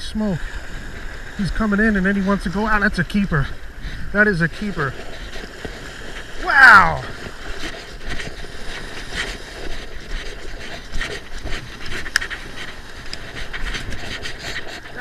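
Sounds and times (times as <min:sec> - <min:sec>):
light surf washing: 0:00.0 - 0:15.0
footsteps: 0:04.4 - 0:15.0.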